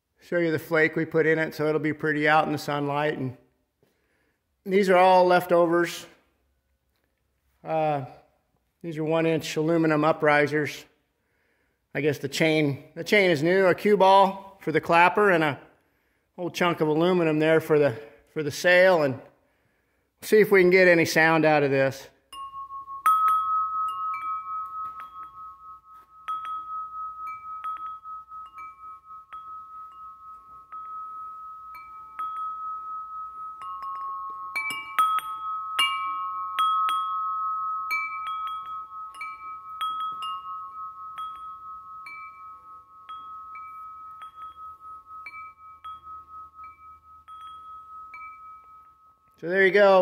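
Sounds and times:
metal wind chime ringing: 21.1s - 50.0s.

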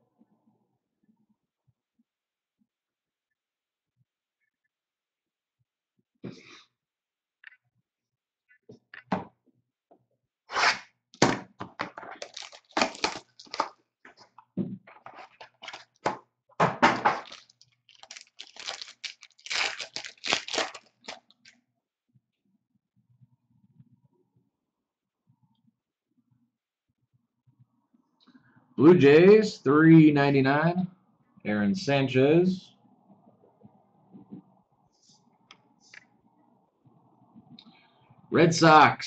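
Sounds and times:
foil pack tearing and crinkling: 12.2s - 13.7s, 17.2s - 21.6s.

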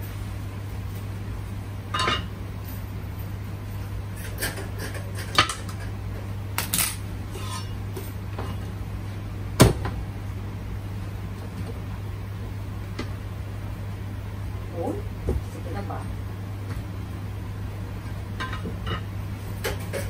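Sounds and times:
steady low hum: 0.0s - 20.0s
dishes and utensils clinking: 2.0s - 2.3s, 18.4s - 20.0s.

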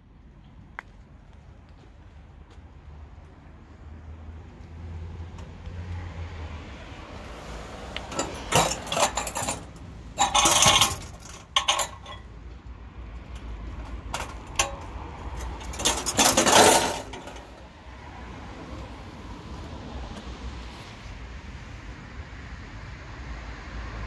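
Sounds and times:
metal parts clinking and rattling: 8.0s - 12.3s, 13.2s - 17.6s.

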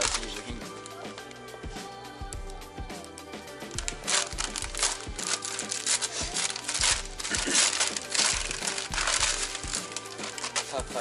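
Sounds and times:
paper bag crinkling: 0.0s - 1.0s, 3.7s - 11.0s
background music with beat: 0.0s - 11.0s.

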